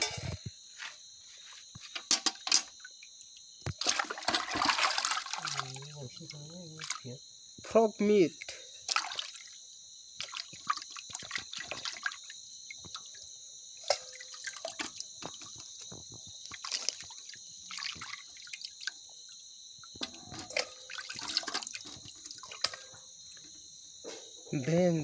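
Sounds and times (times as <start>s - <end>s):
insects chirping: 0.0s - 25.0s
hands sloshing meat in water: 3.8s - 5.9s, 10.2s - 12.2s, 16.4s - 19.0s.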